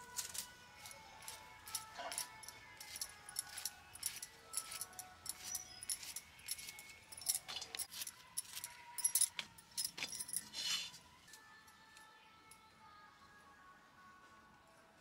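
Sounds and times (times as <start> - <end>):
glass bangles clinking: 0.1 - 11.8.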